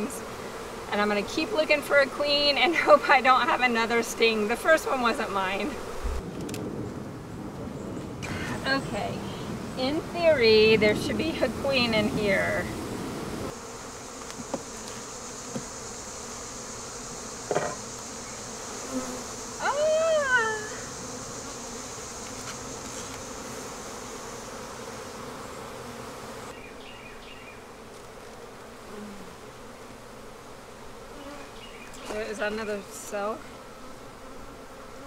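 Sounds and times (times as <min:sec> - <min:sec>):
honeybees buzzing: 0:00.0 - 0:35.0
soft knock: 0:17.5 - 0:17.8.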